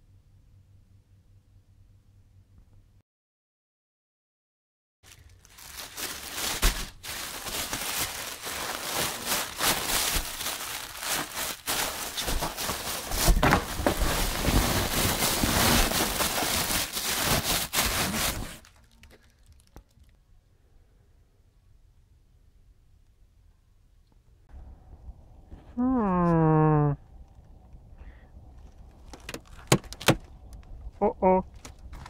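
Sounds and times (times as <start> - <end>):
plastic bags crinkling: 5.0 - 20.2.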